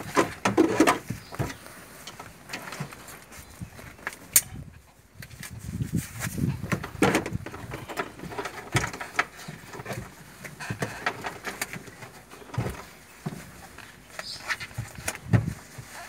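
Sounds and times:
plastic crinkling and rustling: 5.2 - 16.0.

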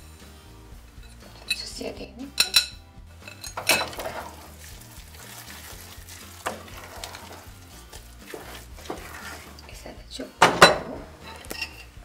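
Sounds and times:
wooden spoon scraping in a pot: 3.2 - 10.0.

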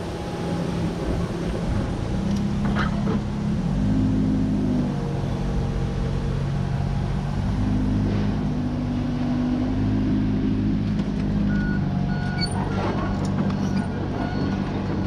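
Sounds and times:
diesel engine running: 0.0 - 15.0
short beeps: 11.5 - 12.6, 13.6 - 14.6.

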